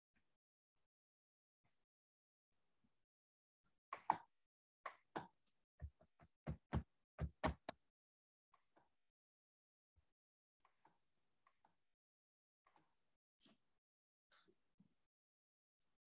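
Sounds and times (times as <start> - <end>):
short taps with dull thuds: 5.8 - 7.7.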